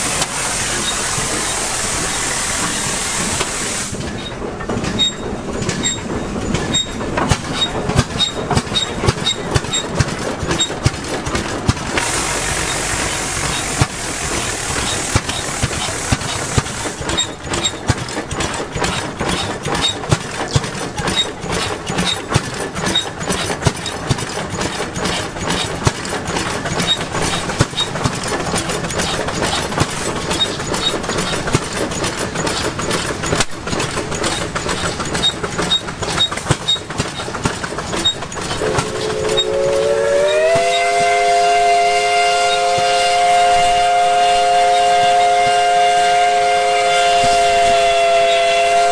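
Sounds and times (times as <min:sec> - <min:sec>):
machinery clattering ticks: 0:00.1 - 0:40.8
steam whistle chord: 0:38.6 - 0:48.9.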